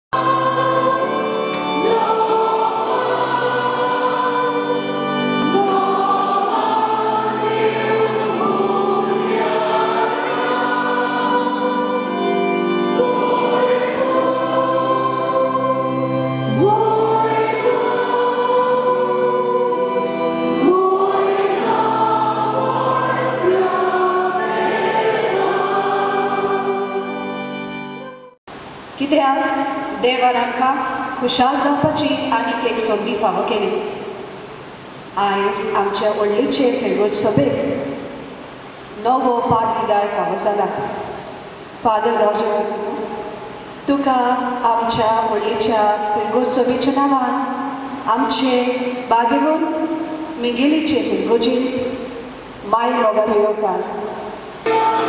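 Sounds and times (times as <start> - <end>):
congregation and choir singing hymn: 0.2 - 28.4, 53.3 - 55.0.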